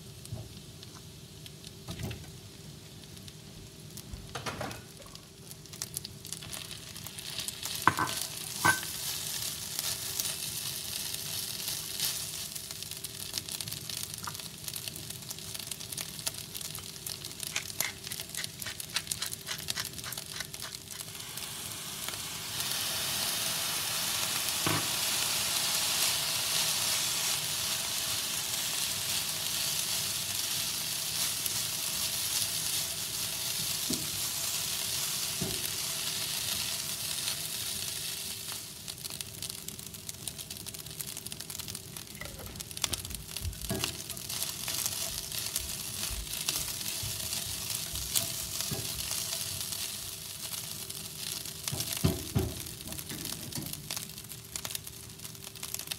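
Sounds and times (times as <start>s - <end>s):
rice sizzling in a pan: 0.0s - 55.9s
spatula scraping and tapping pan: 7.9s - 8.9s.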